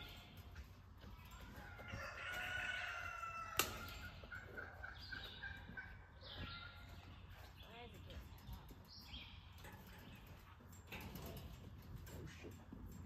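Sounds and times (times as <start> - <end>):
chicken clucking: 1.0 - 7.5
rooster crowing: 1.6 - 3.8.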